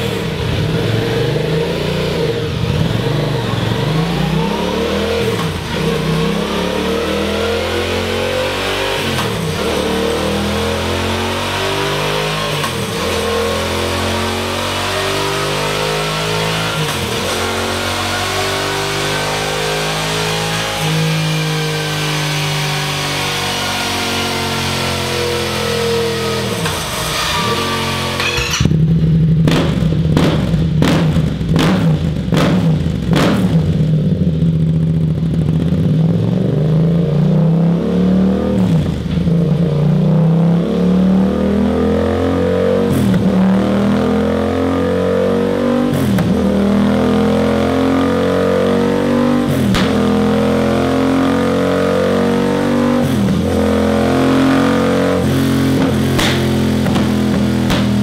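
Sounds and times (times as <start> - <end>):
motorcycle engine revving: 0.0 - 58.0
exhaust cracks: 55.2 - 58.0.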